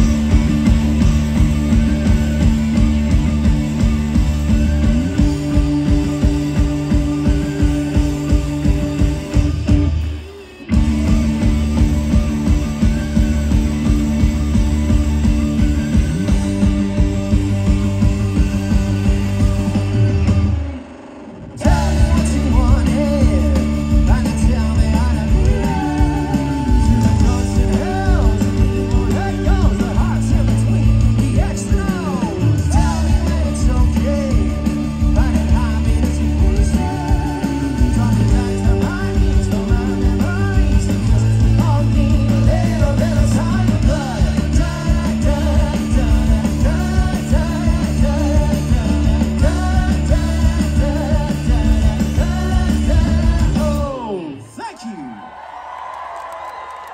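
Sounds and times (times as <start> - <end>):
bass guitar: 0.0 - 54.5
live rock band playing: 0.0 - 54.7
drums: 0.0 - 56.9
electric guitars: 0.0 - 56.9
lead vocal singing: 4.6 - 10.0, 21.6 - 55.1.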